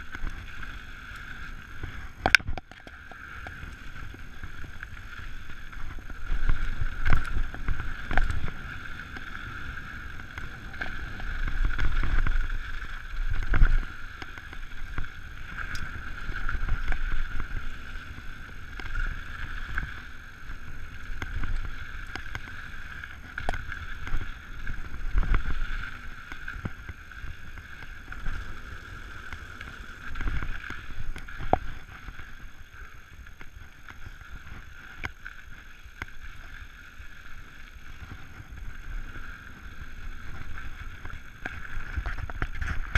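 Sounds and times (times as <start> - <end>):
wind on microphone: 3.4 - 36.6
tyres rumbling over dirt: 22.8 - 32.6.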